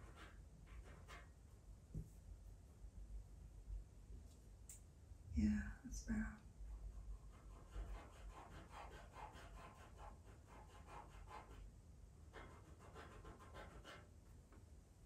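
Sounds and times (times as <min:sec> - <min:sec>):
pencil scratching on paper: 0:00.0 - 0:02.1, 0:06.7 - 0:11.7, 0:12.3 - 0:14.1.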